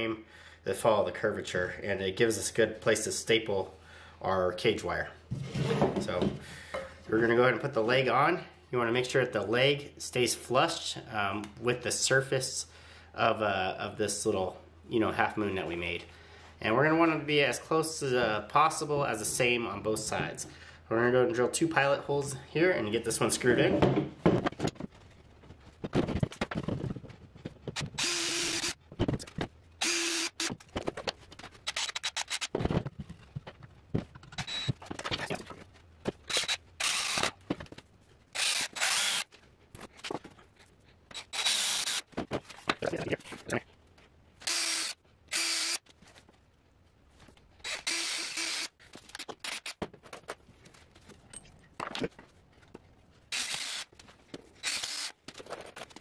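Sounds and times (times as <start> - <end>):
cordless drill driving screws: 27.8 - 28.8, 29.8 - 30.6, 36.3 - 37.3, 38.4 - 39.3, 41.2 - 42.1, 44.4 - 45.8, 47.6 - 48.7, 53.3 - 53.9, 54.6 - 55.2.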